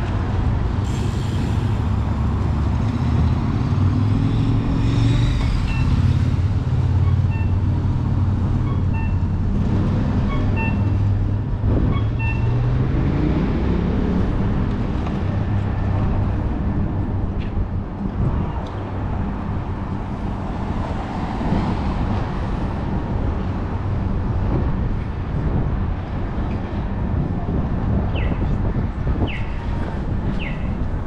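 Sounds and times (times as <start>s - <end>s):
traffic rumble: 0.0s - 31.0s
vehicle accelerating: 0.2s - 8.6s, 9.4s - 17.1s.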